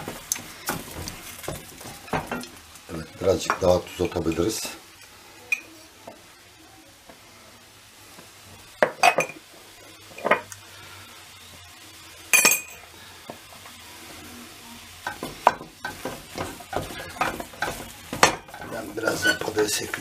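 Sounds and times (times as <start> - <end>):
spoon stirring mashed potato in pot: 15.0 - 20.0.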